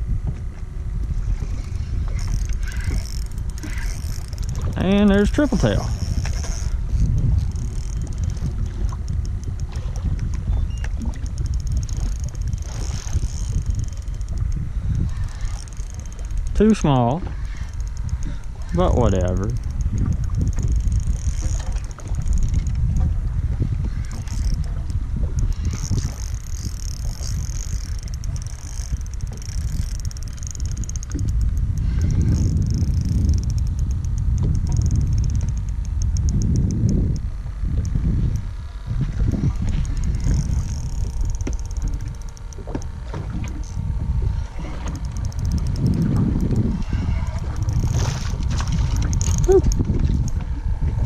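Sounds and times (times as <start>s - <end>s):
wind buffeting microphone: 0.0s - 51.0s
rapid high ticking: 2.2s - 9.7s, 11.1s - 23.0s, 24.1s - 38.5s, 39.8s - 43.9s, 45.0s - 46.9s.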